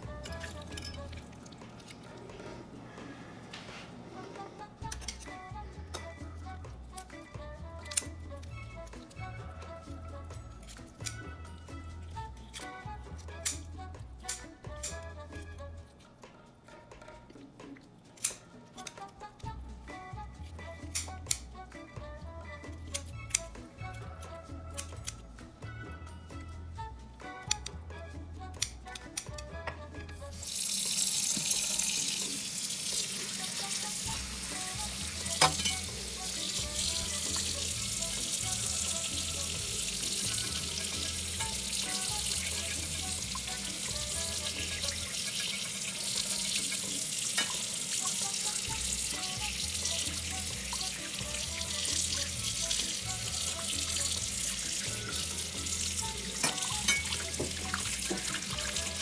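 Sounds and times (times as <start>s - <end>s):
tap water running into sink: 30.4s - 59.0s.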